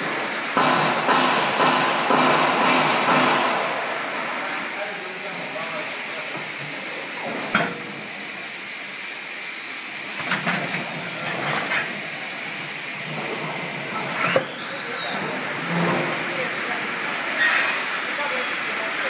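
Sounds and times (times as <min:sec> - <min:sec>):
filling machine hissing: 0:00.0 - 0:19.0
short hissing bursts: 0:08.0 - 0:10.3
pneumatic clicks: 0:14.0 - 0:16.0.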